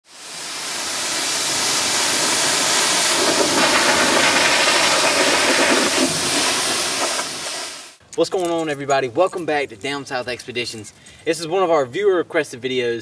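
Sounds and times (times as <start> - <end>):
pressure washer spraying water: 0.1 - 8.0.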